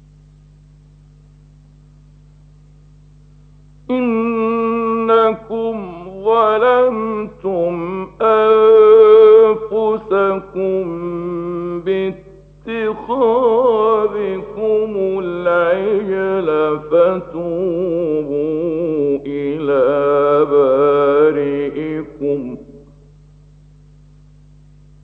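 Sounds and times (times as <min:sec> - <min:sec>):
steady low recording hum: 0:00.0 - 0:25.0
man chanting melodically: 0:03.9 - 0:23.0.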